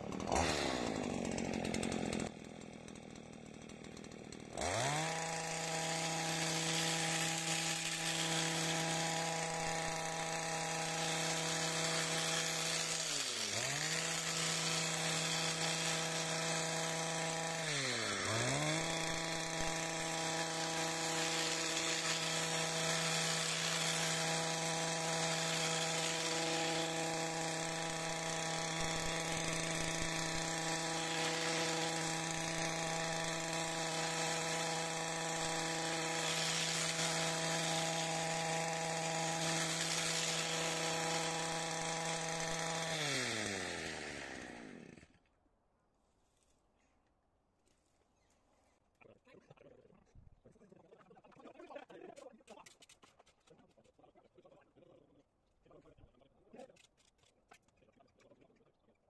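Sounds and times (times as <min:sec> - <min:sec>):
pole hedge trimmer running: 0:00.0 - 0:45.3.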